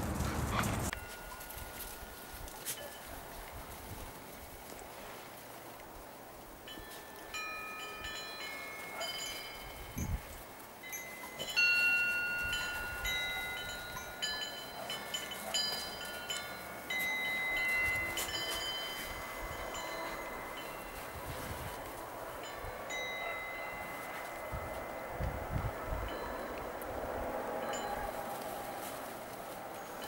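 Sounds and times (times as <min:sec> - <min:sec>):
chimes ringing: 0:00.9 - 0:03.2, 0:06.6 - 0:28.4.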